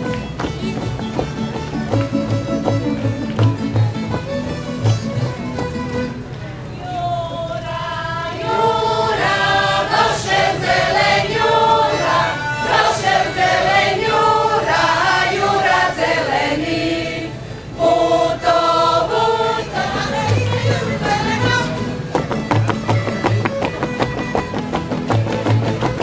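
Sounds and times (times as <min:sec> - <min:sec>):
group singing a folk song: 0:06.8 - 0:23.6.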